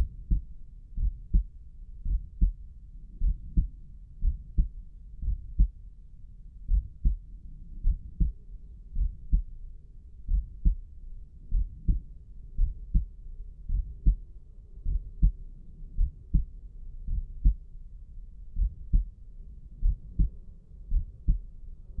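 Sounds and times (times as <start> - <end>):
heartbeat through stethoscope: 0.0 - 5.8, 6.6 - 9.6, 10.3 - 10.9, 11.5 - 17.8, 18.5 - 21.5.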